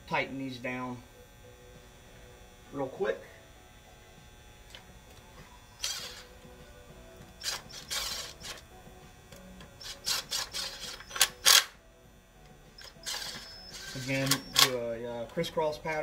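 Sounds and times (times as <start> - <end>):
impact driver bursts: 5.8 - 6.4, 7.2 - 8.6, 9.8 - 11.8, 12.8 - 14.8.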